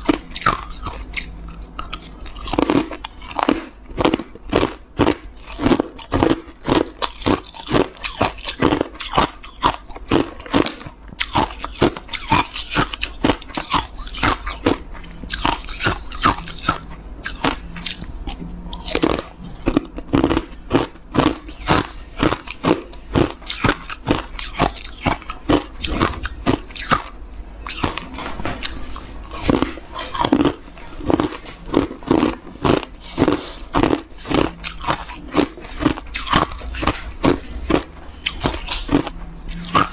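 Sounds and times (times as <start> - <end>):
ice cubes crunching: 0.0 - 18.1, 18.8 - 39.9.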